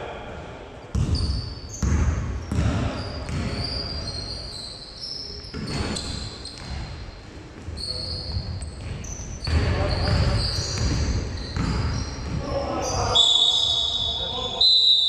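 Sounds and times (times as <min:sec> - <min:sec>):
basketball bouncing: 0:00.9 - 0:03.6, 0:08.4 - 0:12.4
sneakers squeaking on floor: 0:00.9 - 0:15.0.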